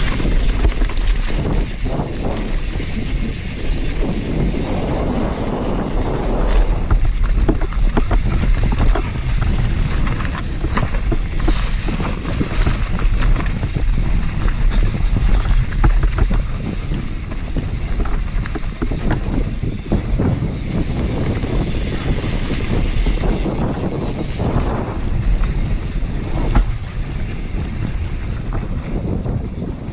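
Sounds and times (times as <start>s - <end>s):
bike rattling and clattering: 0.0s - 29.9s
tyres rumbling over dirt: 0.0s - 29.9s
wind buffeting microphone: 0.0s - 29.9s.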